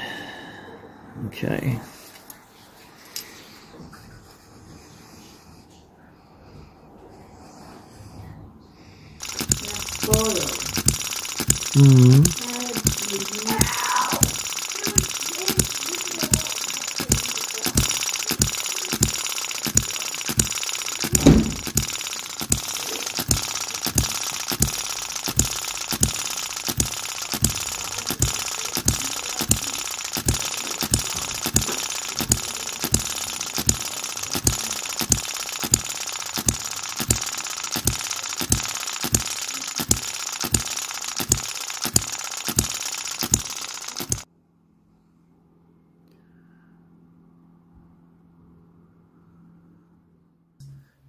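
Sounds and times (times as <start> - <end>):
model engine whirring and popping: 9.2 - 44.3
loud thump: 21.2 - 21.6.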